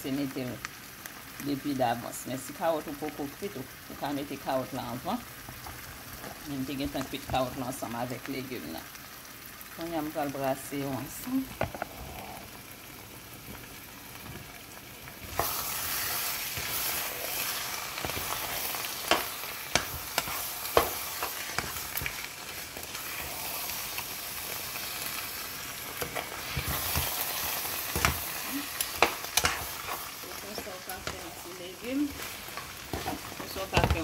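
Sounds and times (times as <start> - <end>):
stew sizzling in a pan: 0.0 - 34.0
utensil scraping a pan: 15.3 - 23.7, 25.9 - 34.0.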